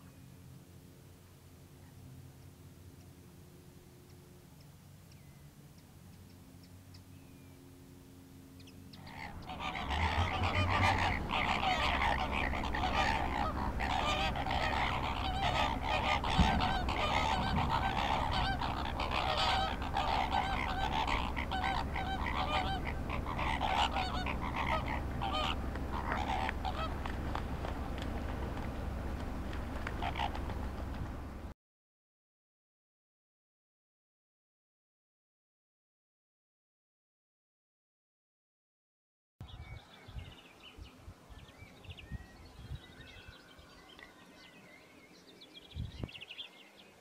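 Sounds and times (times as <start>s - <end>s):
waterbirds honking: 8.6s - 31.5s.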